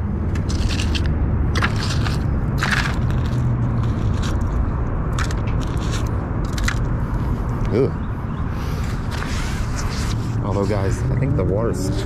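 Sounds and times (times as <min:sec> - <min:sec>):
crackling and scraping of magnet debris: 0:00.3 - 0:07.0.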